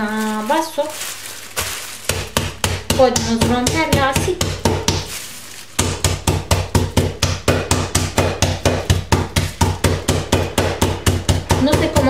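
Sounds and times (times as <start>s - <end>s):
glass pounding nuts on stone: 5.8s - 12.0s.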